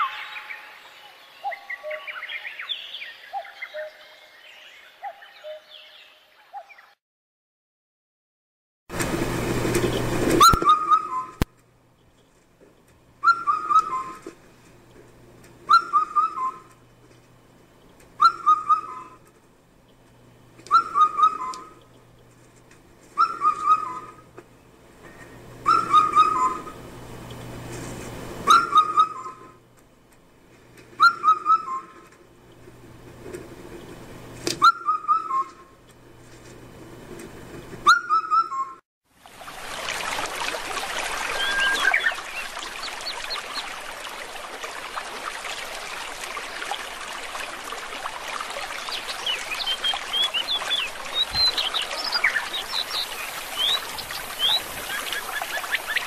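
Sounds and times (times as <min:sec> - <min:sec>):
bird whistling song: 0:00.0 - 0:06.9, 0:10.4 - 0:11.4, 0:13.2 - 0:14.2, 0:15.7 - 0:16.7, 0:18.2 - 0:19.2, 0:20.7 - 0:21.8, 0:23.2 - 0:24.2, 0:25.7 - 0:26.8, 0:28.5 - 0:29.4, 0:31.0 - 0:32.0, 0:34.6 - 0:35.7, 0:37.9 - 0:38.8, 0:41.3 - 0:43.4, 0:48.8 - 0:56.0.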